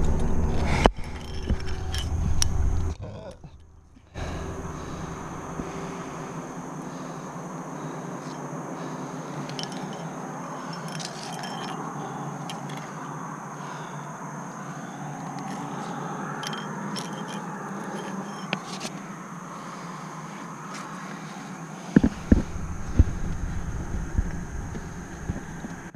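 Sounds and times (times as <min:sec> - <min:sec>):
carabiners jingling and clicking: 0:01.0 - 0:03.7, 0:08.2 - 0:13.2, 0:14.6 - 0:19.0.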